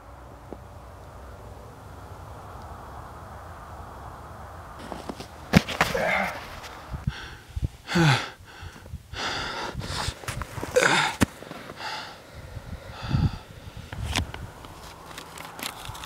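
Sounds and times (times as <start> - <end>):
person gasping for breath: 7.0 - 11.2, 11.8 - 12.2, 12.9 - 13.6.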